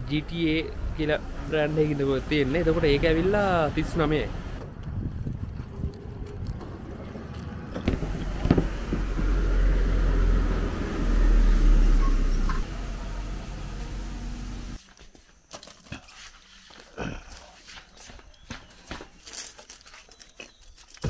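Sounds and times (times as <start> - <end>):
road traffic rumble: 0.0 - 14.8.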